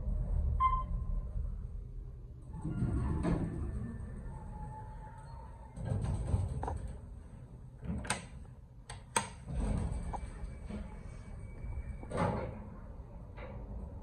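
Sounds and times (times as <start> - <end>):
elevator sliding door moving: 0.0 - 1.8, 2.4 - 8.4, 9.1 - 14.0
sharp clicks and knocks: 7.8 - 9.5.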